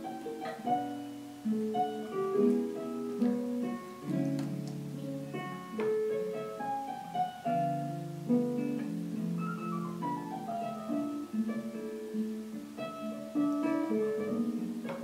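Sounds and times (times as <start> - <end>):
instrumental piano music: 0.0 - 15.0.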